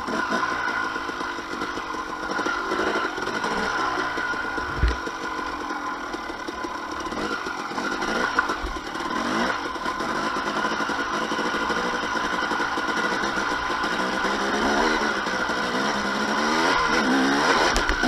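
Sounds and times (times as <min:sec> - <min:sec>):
two-stroke motorcycle engine revving: 0:00.0 - 0:18.0
short thump: 0:04.6 - 0:05.0.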